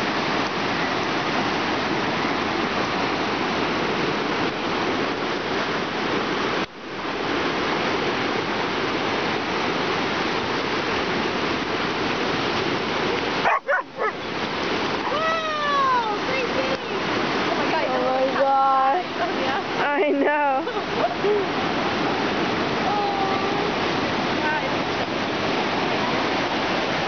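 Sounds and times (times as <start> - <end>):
dog yelps: 13.4 - 14.2.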